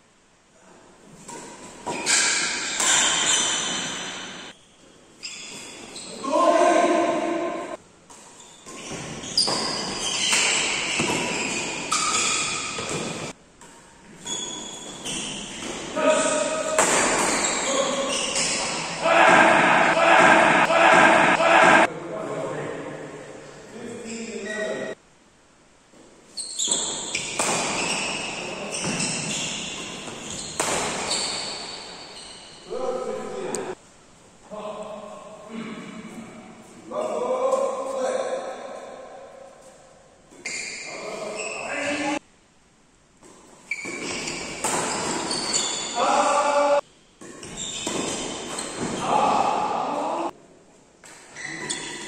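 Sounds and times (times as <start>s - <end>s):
racket hitting shuttlecock: 1.2s - 4.5s, 7.0s - 21.9s, 26.7s - 31.9s, 43.2s - 45.9s, 47.2s - 49.8s
shoe squeaks: 1.8s - 6.8s, 8.4s - 13.3s, 14.1s - 19.0s, 24.0s - 25.0s, 26.3s - 33.1s, 40.3s - 42.2s, 43.6s - 49.2s, 51.3s - 52.0s.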